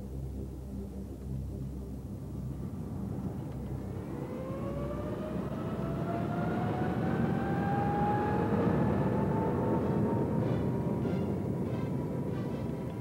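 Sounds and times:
jet engine spooling up: 3.9s - 13.0s.

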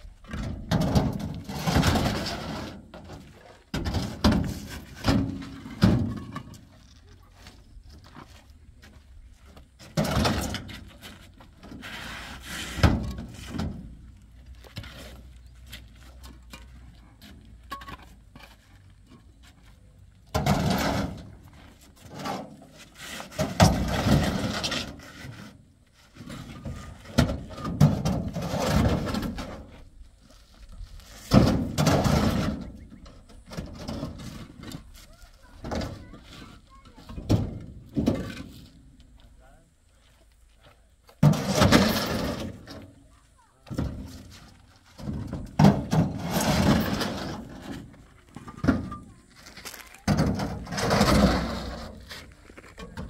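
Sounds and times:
scraping and rubbing: 0.7s - 8.6s, 9.8s - 16.5s, 20.6s - 37.0s, 43.7s - 53.0s.

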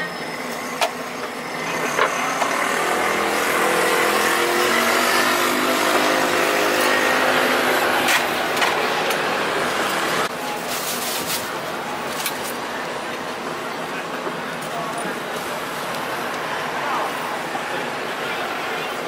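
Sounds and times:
street noise: 0.0s - 19.0s.

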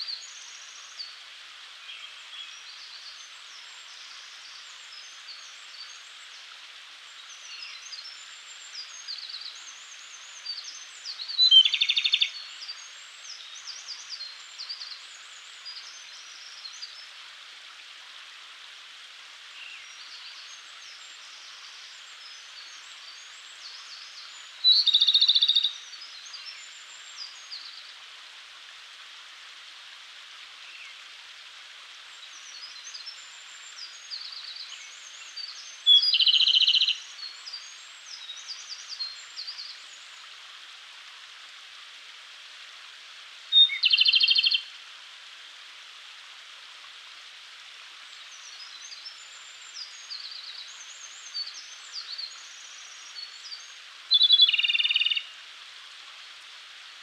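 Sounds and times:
forest hiss: 0.0s - 57.0s
bird song with rattling trill: 53.2s - 55.3s.

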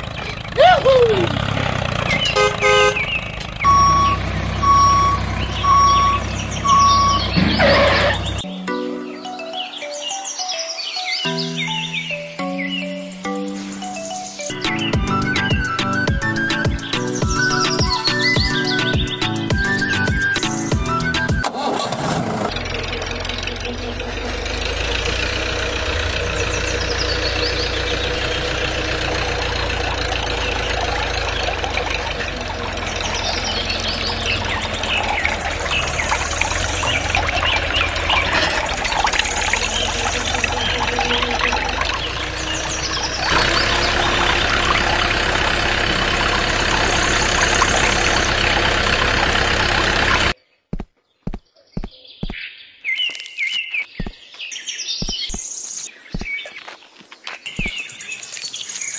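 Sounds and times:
small engine running: 0.0s - 8.4s, 21.4s - 50.4s
birds chirping: 0.0s - 21.4s, 22.5s - 58.9s
gushing water: 28.9s - 50.4s.

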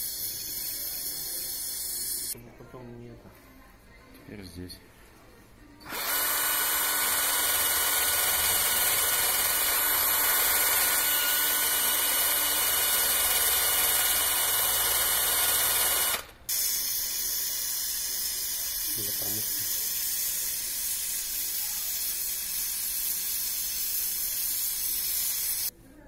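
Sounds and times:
power drill brush whirring on pipe: 5.9s - 16.3s.

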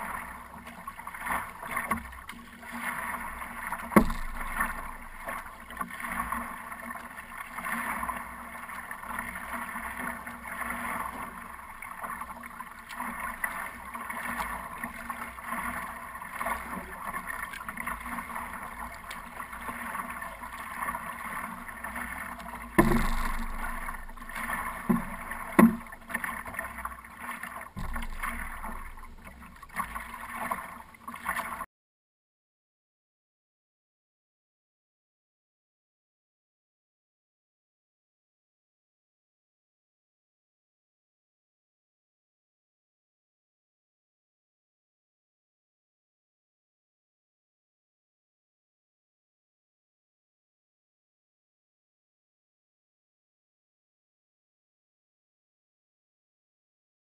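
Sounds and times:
water splashing along hull: 0.0s - 31.7s
louder thumps: 3.9s - 5.6s, 22.8s - 25.9s, 27.8s - 29.4s.

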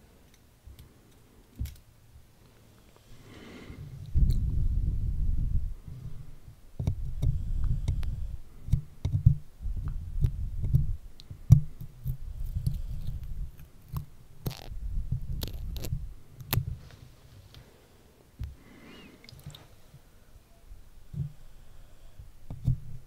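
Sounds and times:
stickers peeling rasps: 11.5s - 16.7s
fingers rubbing a microphone: 12.0s - 16.1s.

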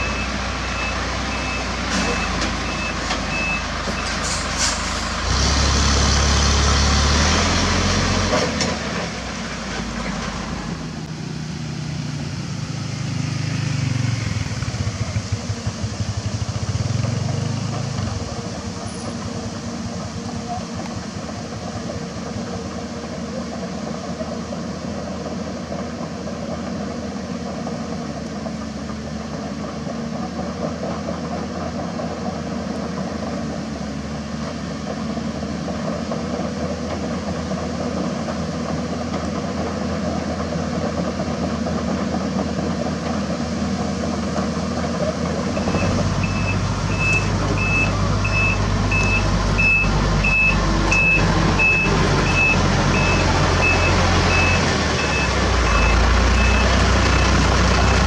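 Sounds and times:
reversing alarm beeping: 0.0s - 4.2s, 45.6s - 58.0s
excavator diesel engine running: 0.0s - 58.0s
truck diesel engine: 0.0s - 58.0s.

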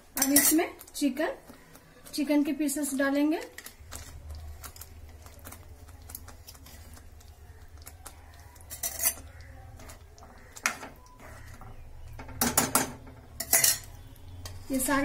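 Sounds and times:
spoon clinking against frying pan: 8.7s - 10.0s, 12.2s - 14.6s.

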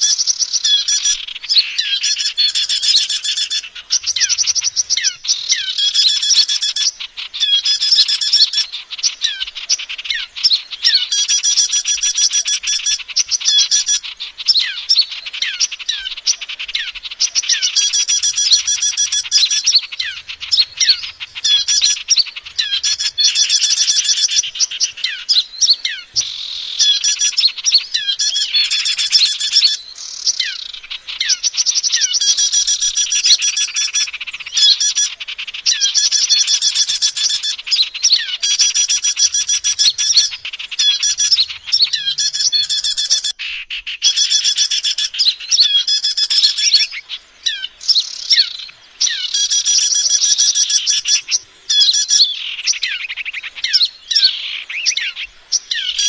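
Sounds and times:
songbirds chirping and twittering: 0.0s - 56.0s.

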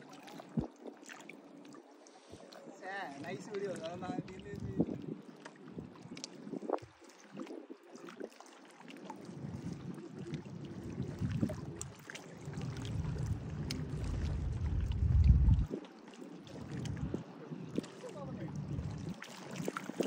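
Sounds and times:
sea water lapping and splashing: 0.0s - 20.0s
wind rumble on microphone: 0.4s - 0.9s, 3.2s - 8.0s, 9.3s - 15.9s, 16.5s - 20.0s.

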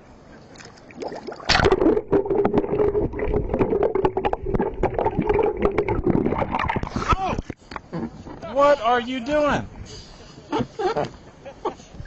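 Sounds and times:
steady hum: 0.0s - 9.8s.

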